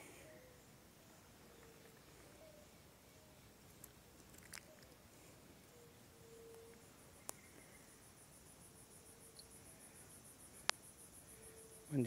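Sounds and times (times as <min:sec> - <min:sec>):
high-pitched insect call pulsing: 0:05.7 - 0:12.0.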